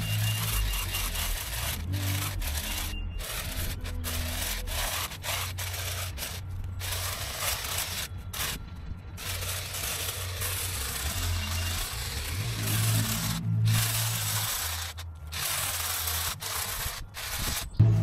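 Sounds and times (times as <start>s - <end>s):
hedge trimmer rasping buzz: 0.0s - 8.6s, 9.2s - 18.0s
background music: 17.8s - 18.0s.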